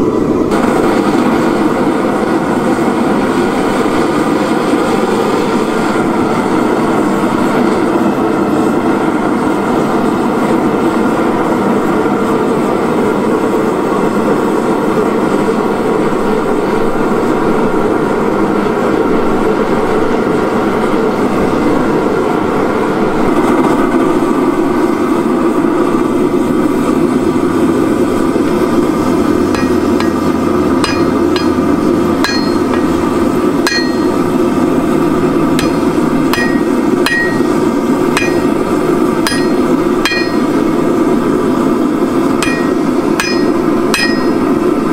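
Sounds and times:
forge burners hissing: 0.0 - 44.9
hammer blows on metal: 28.9 - 41.0, 42.2 - 44.9.

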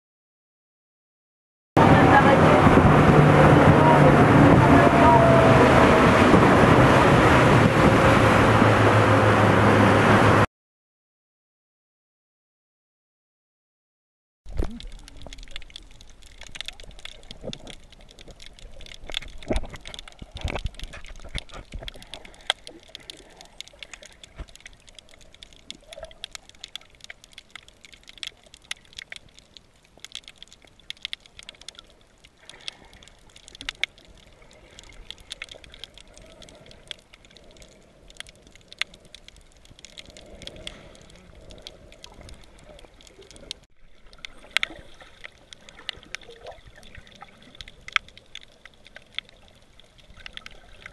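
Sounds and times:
underwater hiss with crackling clicks: 14.5 - 50.9.

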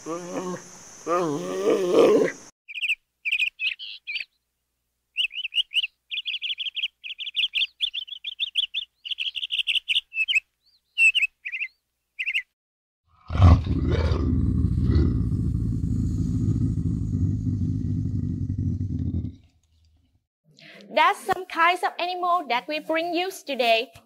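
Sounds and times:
bird chirping: 2.3 - 4.4, 5.1 - 12.6
loud low rumble: 14.3 - 19.0.

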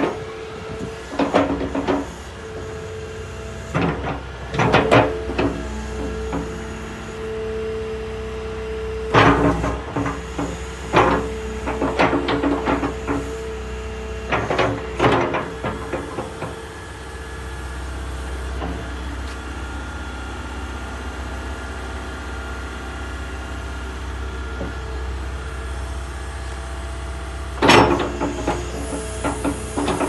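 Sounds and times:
metallic clanks of excavator arm: 0.0 - 2.7, 3.7 - 6.6, 9.1 - 13.4, 14.3 - 16.8, 18.5 - 19.5, 27.6 - 30.0
hydraulics working: 0.0 - 21.4, 22.2 - 30.0
excavator diesel engine running: 0.0 - 30.0.

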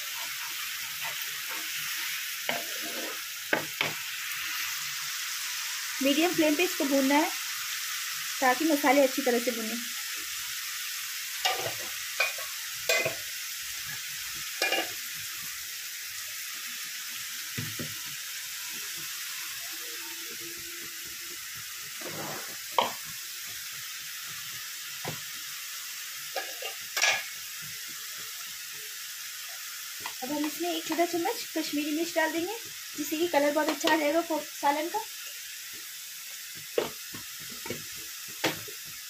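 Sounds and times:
spatula stirring: 0.0 - 3.3
masala sizzling in oil: 0.0 - 39.0.

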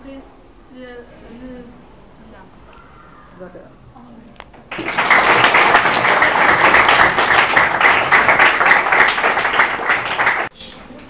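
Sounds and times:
children applauding: 4.7 - 10.5.

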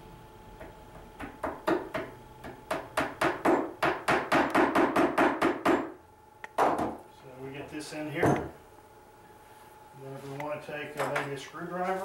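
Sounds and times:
hammer tapping a nail into wood: 0.6 - 5.9.

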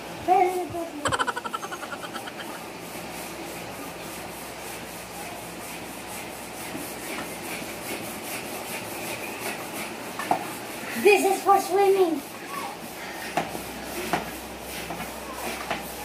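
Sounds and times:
hand air pump strokes: 0.4 - 5.0.

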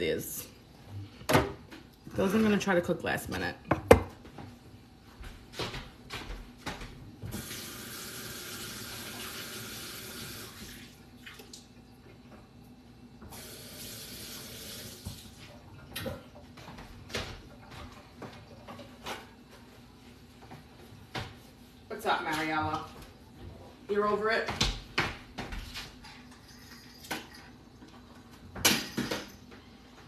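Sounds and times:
faucet running into sink: 7.3 - 11.6, 13.3 - 15.4.

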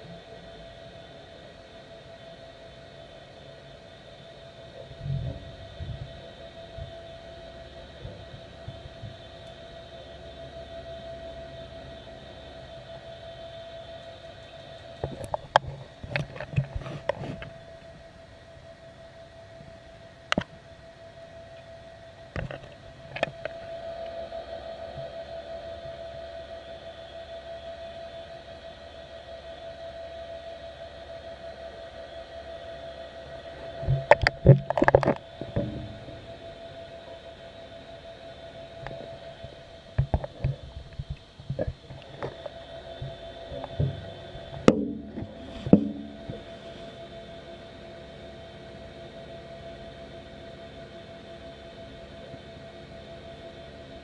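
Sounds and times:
steady hum: 0.0 - 54.0
underwater knocks and clanks: 15.0 - 17.6, 22.3 - 23.6, 33.8 - 36.2, 39.9 - 46.6.

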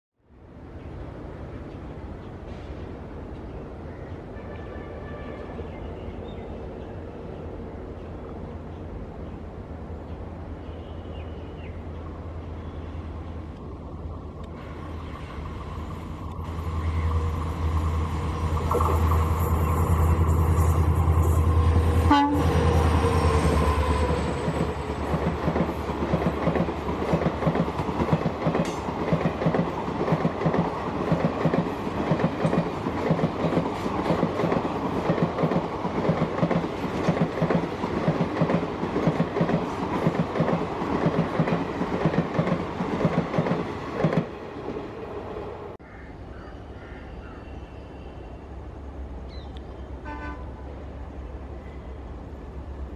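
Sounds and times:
train horn: 4.4 - 5.9, 19.7 - 25.0, 50.0 - 50.7
diesel locomotive engine rumbling: 6.0 - 45.8.

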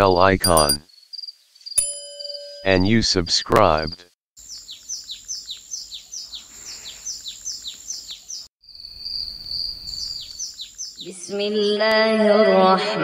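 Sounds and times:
bird chirping: 4.4 - 12.2.

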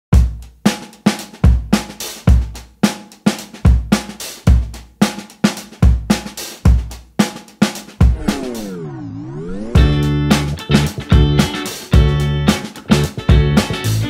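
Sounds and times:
drum kit beat: 0.1 - 9.0, 9.6 - 14.0
kick drum thumps: 0.2 - 0.6, 1.4 - 2.7, 3.7 - 4.9, 5.8 - 7.2, 8.0 - 8.5, 9.8 - 10.5.

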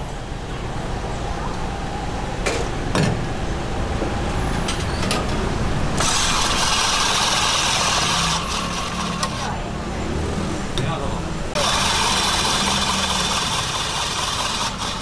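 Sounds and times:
ice-shaving machine hissing: 6.0 - 9.5, 11.6 - 15.0.

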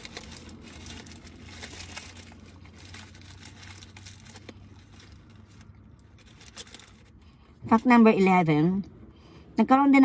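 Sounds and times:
paper wrapper crinkling: 0.0 - 7.2.

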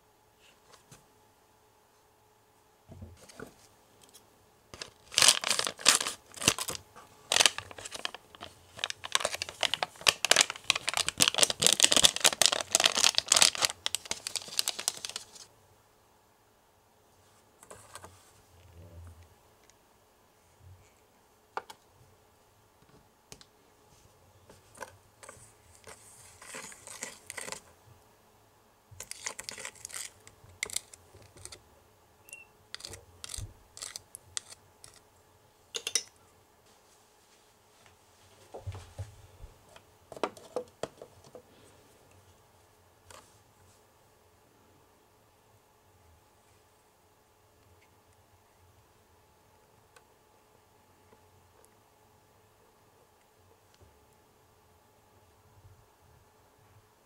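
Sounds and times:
foil packet crinkling and tearing: 4.8 - 15.5, 25.2 - 27.6, 29.0 - 31.6, 32.8 - 35.0.

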